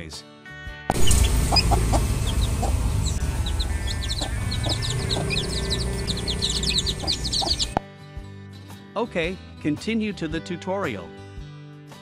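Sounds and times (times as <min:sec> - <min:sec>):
chicks cheeping: 0:00.9 - 0:07.8
low background rumble: 0:00.9 - 0:07.8.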